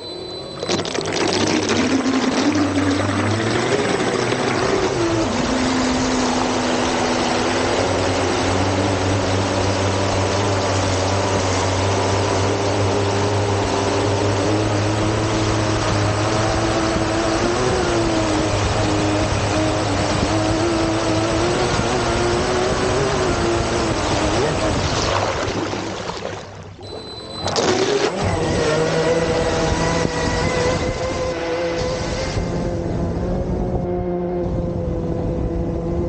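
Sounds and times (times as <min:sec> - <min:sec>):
spray and rushing water: 0:00.6 - 0:26.9
electric motors whining: 0:26.8 - 0:32.6.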